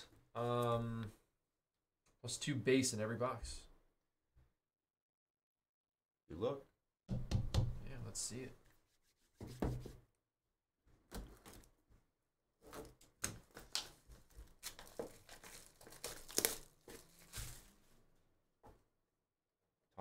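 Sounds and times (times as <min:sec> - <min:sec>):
plastic shrink-wrap tearing: 0:13.7 - 0:17.7.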